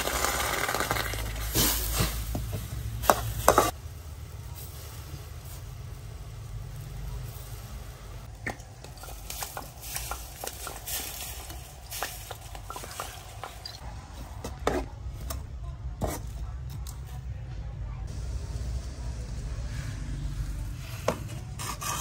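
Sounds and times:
faint sizzle: 0.0s - 8.4s, 17.8s - 21.3s
metal spatula scraping a wok: 20.6s - 22.0s.

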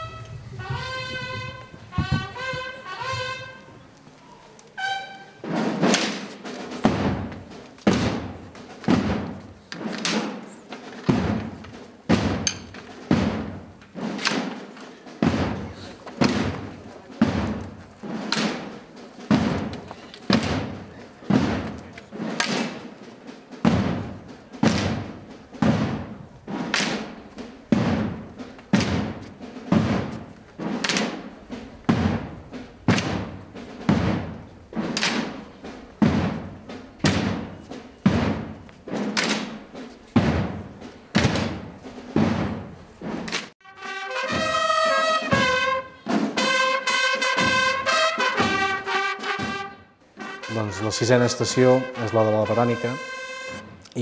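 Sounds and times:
cornets playing long notes: 0.0s - 3.8s, 4.8s - 5.4s, 43.6s - 53.8s
slow drum beats: 0.0s - 54.0s.

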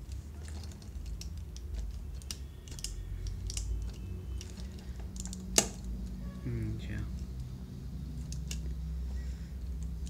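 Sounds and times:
plastic clicks and rattles: 0.1s - 5.9s.

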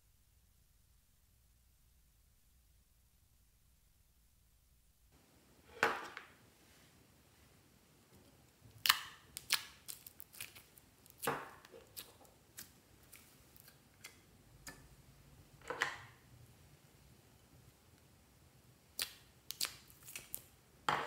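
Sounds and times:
sticky slime clicks and snaps: 8.8s - 11.3s, 19.0s - 20.5s.

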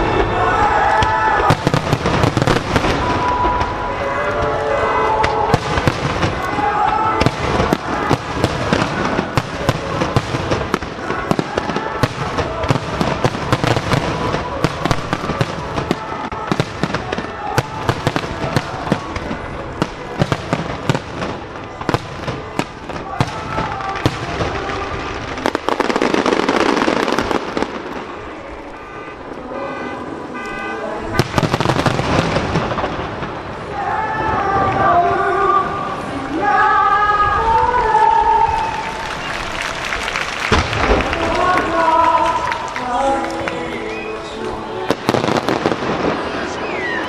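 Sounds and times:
fireworks bursts and crackling: 0.0s - 47.0s.

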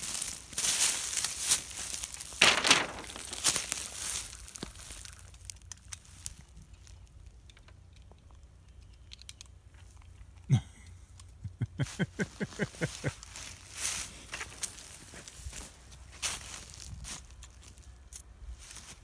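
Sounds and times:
footsteps crunching dry leaves: 0.0s - 7.1s, 11.9s - 19.0s.

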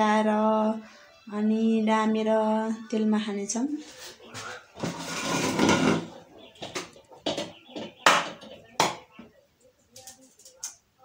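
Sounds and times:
crockery on wooden table: 3.8s - 10.8s.

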